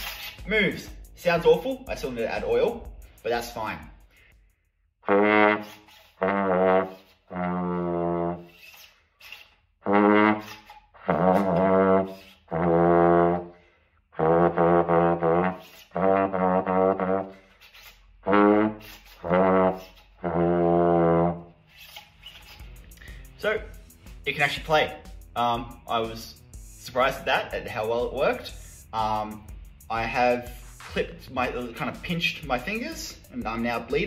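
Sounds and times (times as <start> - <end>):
breaths: 4.0 - 4.9, 13.4 - 14.2, 22.8 - 23.4
trombone playing slow tune: 5.0 - 8.5, 9.8 - 13.5, 14.2 - 17.3, 18.2 - 21.4.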